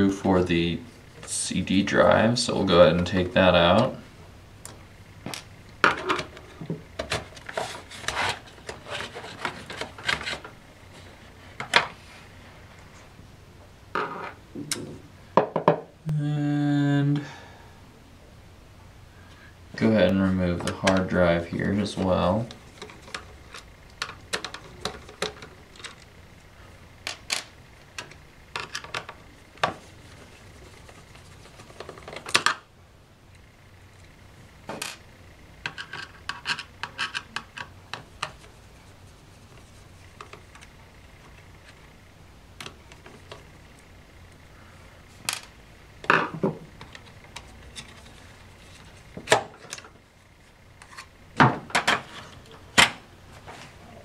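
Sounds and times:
hard drive caddy clicks and rattles: 22.7 - 26.1.

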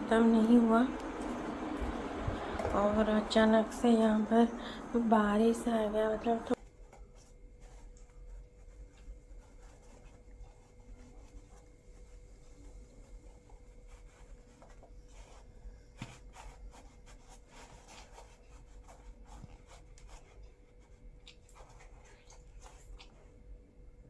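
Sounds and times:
fabric scratching and rubbing: 6.2 - 23.1.

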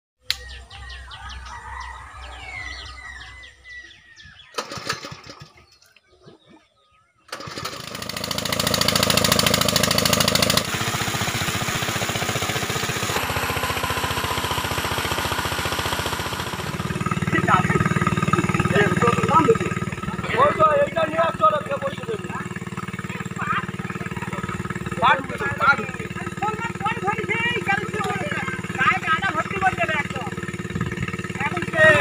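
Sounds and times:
birds chirping: 0.2 - 7.7, 16.6 - 32.0
small petrol engine running: 4.4 - 5.8, 7.3 - 32.0
water rushing from outlet: 7.3 - 32.0
low hum: 13.2 - 32.0.

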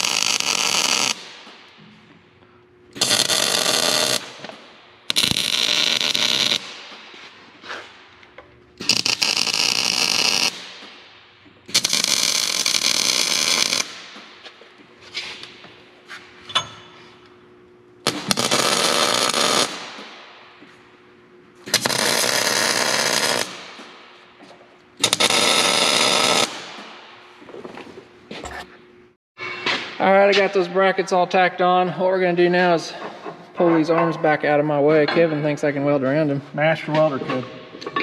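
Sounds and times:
welding arc crackle: 0.0 - 1.6, 2.9 - 7.0, 8.8 - 11.1, 11.7 - 14.2, 18.0 - 20.2, 21.6 - 24.0, 25.0 - 26.9.

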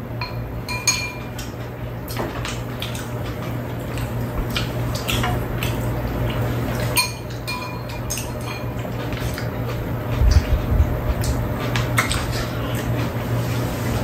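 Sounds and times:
steady low hum: 0.0 - 14.0
metal spoons clinking against bowls: 0.2 - 1.5, 7.0 - 9.4.

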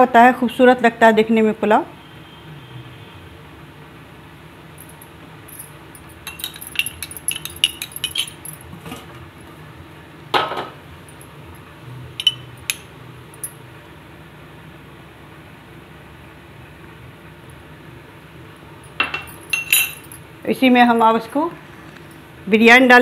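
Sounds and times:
dishes and utensils clinking: 4.8 - 9.2, 12.2 - 12.9, 19.0 - 20.2.

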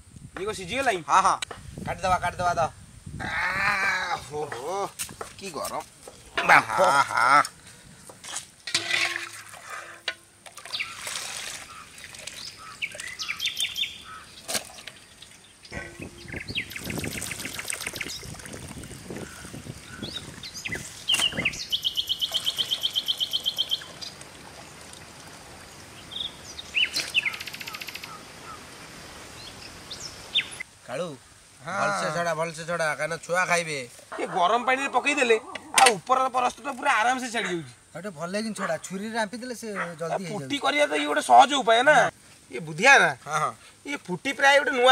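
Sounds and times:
birds chirping and calling: 10.6 - 18.4, 19.1 - 24.2, 26.0 - 28.7, 29.4 - 30.6.

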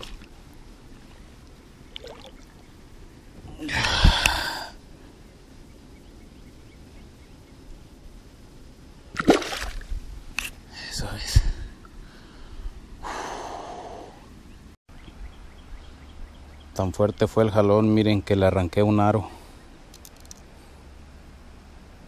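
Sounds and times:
low outdoor background: 0.0 - 22.0
water splashing: 1.9 - 2.6, 9.1 - 9.9.

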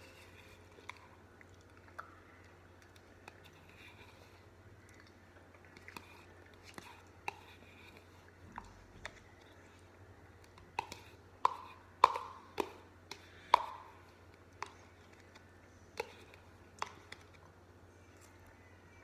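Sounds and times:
utensil tapping plastic cup: 10.5 - 13.9.

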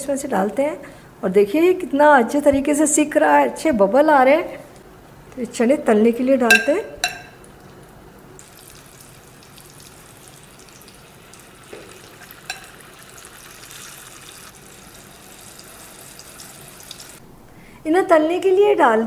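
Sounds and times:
ladle knocking against pan: 6.5 - 7.4
deep-frying oil sizzling: 8.4 - 17.2.

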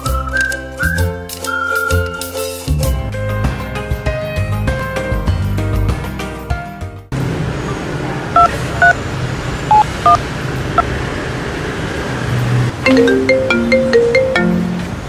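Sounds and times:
phone keypad beeps: 9.7 - 10.2
marimba-like ringtone melody: 12.8 - 15.0.

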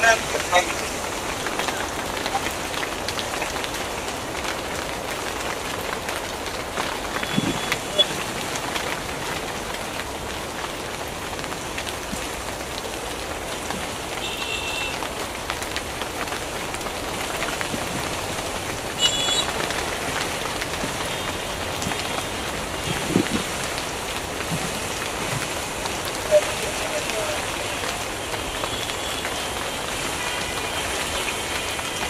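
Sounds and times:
heavy rain falling: 0.0 - 32.0.

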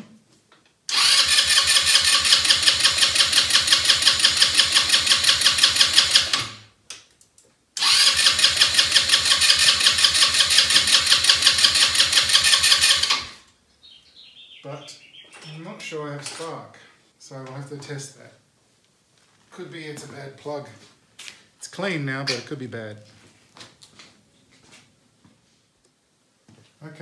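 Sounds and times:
electric starter cranking engine: 0.9 - 6.7, 7.8 - 13.4.

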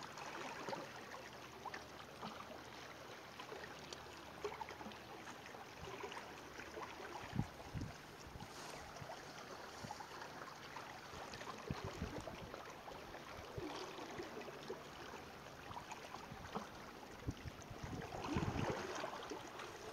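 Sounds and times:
wind on microphone: 7.2 - 9.2, 11.6 - 12.6, 17.2 - 19.0
surf washing: 18.0 - 19.9.

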